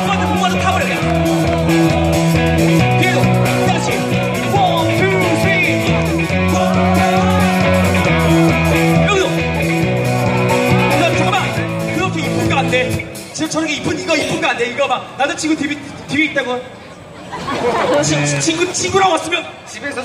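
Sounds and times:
drum kit beat: 0.0s - 13.4s
electric guitars: 0.0s - 13.4s
steady bass line: 0.0s - 14.0s.

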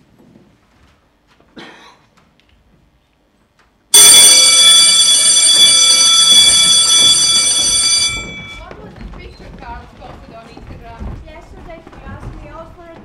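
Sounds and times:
loud electric bell ringing: 4.0s - 8.7s.

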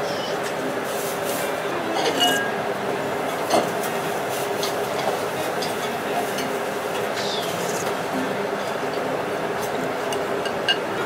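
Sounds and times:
restaurant background hum: 0.0s - 11.0s
tableware clinking: 1.9s - 2.6s.

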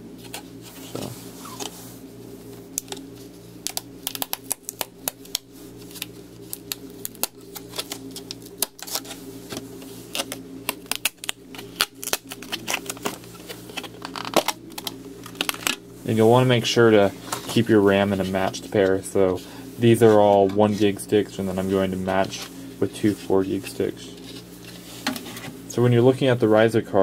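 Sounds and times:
steady low hum: 0.0s - 27.0s
plastic packaging clicks and crackles: 3.6s - 15.8s.

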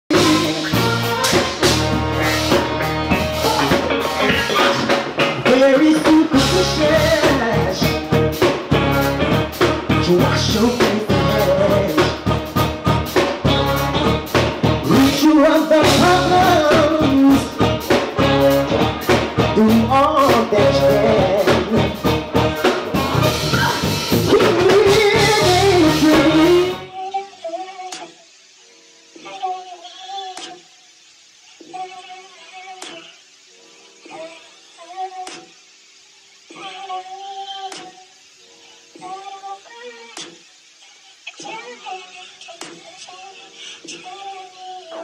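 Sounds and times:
person singing into microphone: 0.1s - 2.6s, 3.2s - 8.8s, 9.8s - 12.7s, 14.8s - 28.2s, 36.5s - 38.1s, 38.9s - 40.5s, 41.2s - 45.0s
drum-kit beat: 0.1s - 26.9s
keyboard: 0.1s - 27.0s
saxophone: 0.1s - 28.4s.

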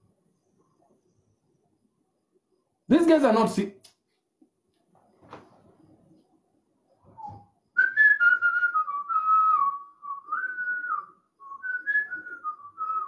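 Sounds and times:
person whistling a tune: 7.1s - 13.0s.

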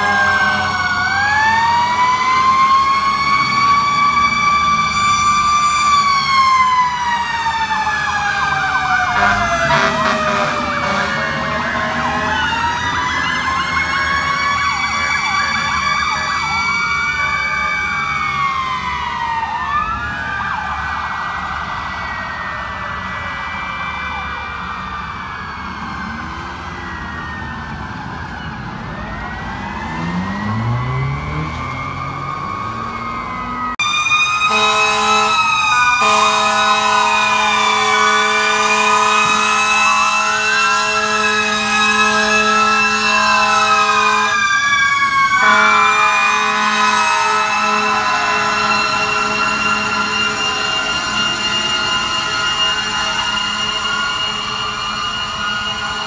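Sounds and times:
horn blasts: 0.0s - 0.8s, 9.1s - 12.4s, 34.4s - 44.5s, 45.4s - 56.0s
fire truck sirens wailing: 0.0s - 56.0s.

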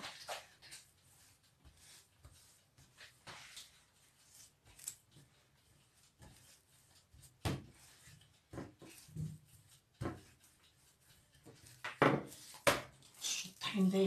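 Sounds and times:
rolling pin thudding on dough: 0.0s - 13.2s.

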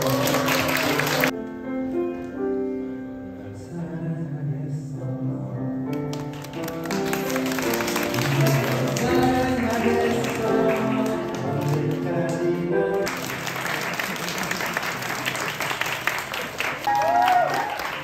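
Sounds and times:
crowd noise: 0.0s - 1.4s, 6.6s - 18.0s
backing music: 0.0s - 15.4s
man singing a love song: 3.4s - 5.9s, 8.2s - 13.1s.

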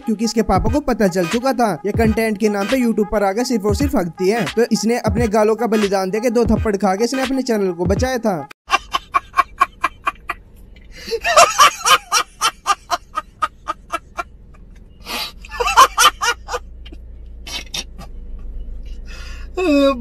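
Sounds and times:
man laughing loudly: 8.7s - 10.4s, 11.0s - 16.8s, 17.5s - 18.2s.

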